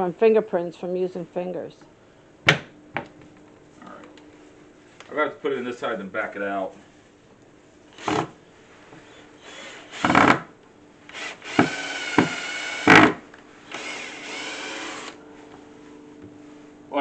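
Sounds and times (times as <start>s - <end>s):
cordless drill boring wood: 8.0s - 8.3s, 9.0s - 10.4s, 11.1s - 15.2s.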